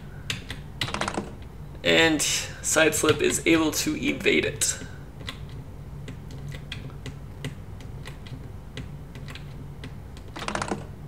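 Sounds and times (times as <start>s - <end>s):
low steady hum: 0.0s - 11.0s
computer keyboard clicks: 5.2s - 10.9s.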